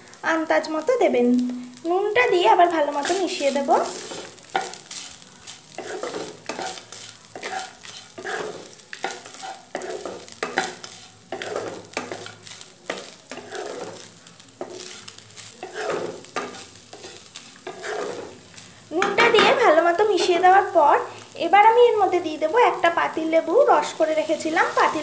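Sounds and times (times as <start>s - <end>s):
spatula scraping pan: 2.9s - 20.6s.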